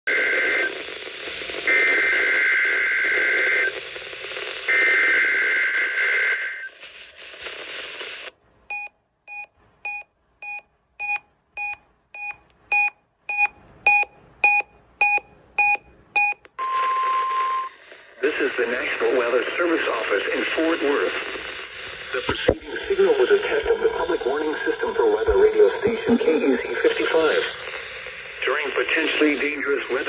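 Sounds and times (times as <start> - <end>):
radio static: 0.1 - 8.3, 17.7 - 30.0
warbling two-tone data bursts: 22.3 - 27.6.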